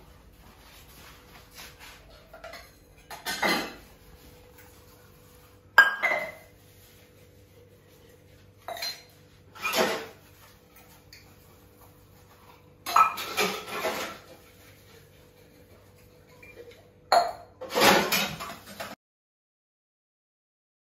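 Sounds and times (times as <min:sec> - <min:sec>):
steel dishes clattering: 0:02.2 - 0:04.0, 0:12.9 - 0:14.3, 0:15.6 - 0:19.0.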